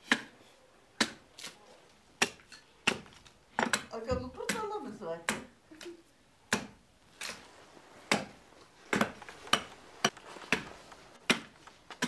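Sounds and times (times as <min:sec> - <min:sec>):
hatchet chopping wood: 0:00.0 - 0:00.4, 0:01.0 - 0:01.5, 0:02.2 - 0:05.5, 0:06.5 - 0:06.8, 0:08.1 - 0:10.6, 0:11.2 - 0:11.6.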